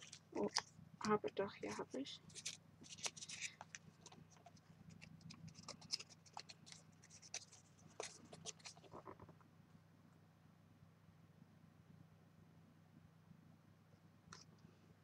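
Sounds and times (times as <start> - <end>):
cardstock rustling and clicking: 2.3 - 9.2.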